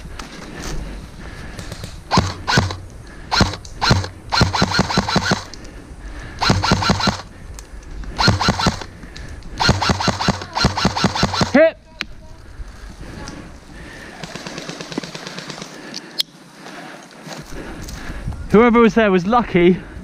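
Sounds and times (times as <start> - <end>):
airsoft rifle rapid clicking shots: 1.7 - 5.6, 6.4 - 7.3, 8.1 - 8.9, 9.6 - 11.6, 14.2 - 15.8.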